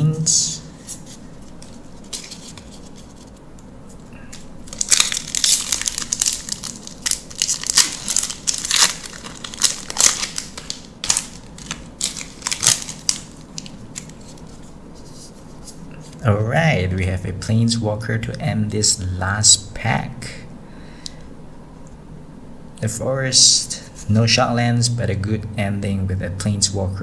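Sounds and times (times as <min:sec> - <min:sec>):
foil wrapper crinkling: 0:04.3 - 0:14.6.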